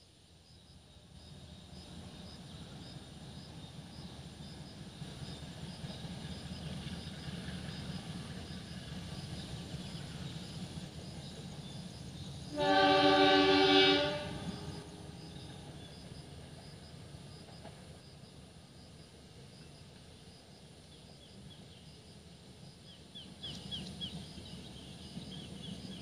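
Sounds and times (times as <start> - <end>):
diesel locomotive rumble: 1.4 - 19.4
locomotive horn blast: 12.5 - 14.7.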